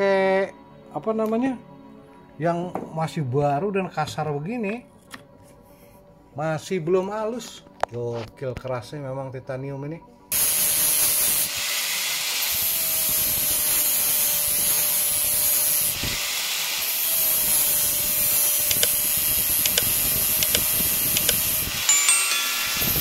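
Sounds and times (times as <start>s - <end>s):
angle grinder grinding metal: 10.4s - 23.0s.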